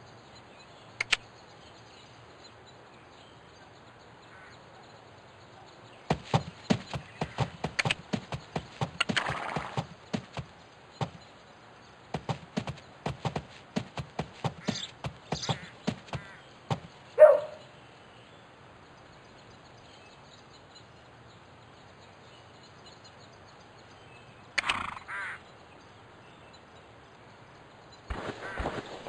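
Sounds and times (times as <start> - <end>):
horse hooves clip-clopping: 6.1 - 11.3, 12.1 - 17.0.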